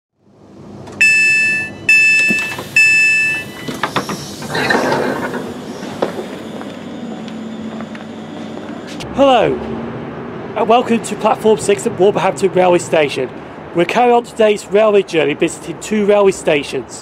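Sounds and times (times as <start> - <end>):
train door sliding open: 0.7 - 9.0
two-tone beeps: 1.0 - 3.8
door clunks: 2.0 - 5.4.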